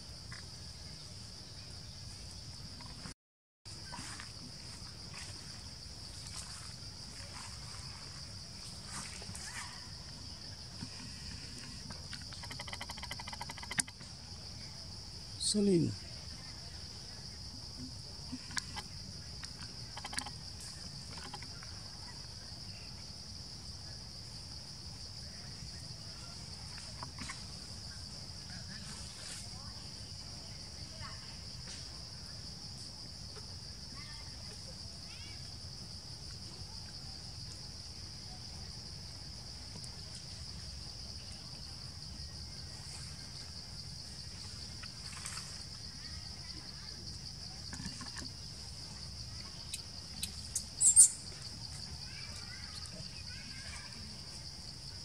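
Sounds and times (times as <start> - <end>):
insects chirring: 0.0 - 55.0
high-pitched insect drone: 49.7 - 51.5.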